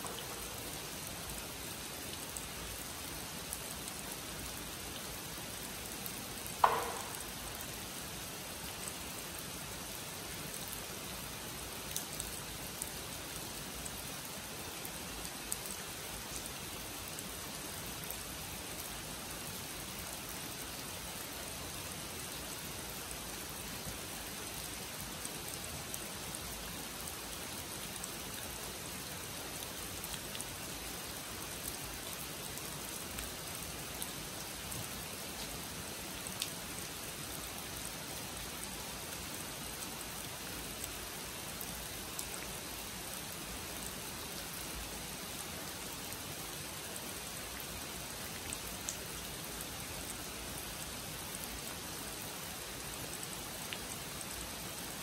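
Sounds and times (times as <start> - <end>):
rain falling on pond and leaves: 0.0 - 55.0
sharp knock: 6.6 - 7.4.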